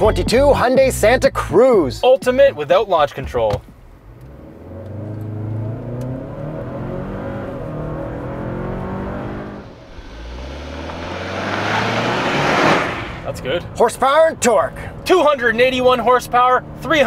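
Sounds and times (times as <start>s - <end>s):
truck approaching: 4.0s - 17.0s
engine accelerating inside cabin: 4.2s - 13.3s.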